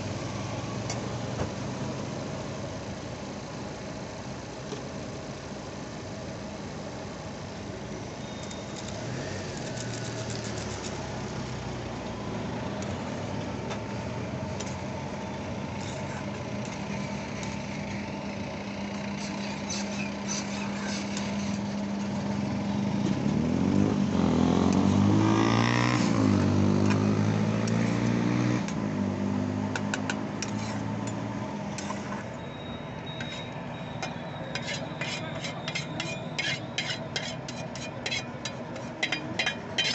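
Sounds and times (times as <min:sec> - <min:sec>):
street traffic: 0:00.0 - 0:39.9
vehicle engine humming: 0:00.0 - 0:39.9
metal spatula scraping a pan: 0:19.2 - 0:22.2, 0:30.0 - 0:30.9, 0:33.2 - 0:39.9.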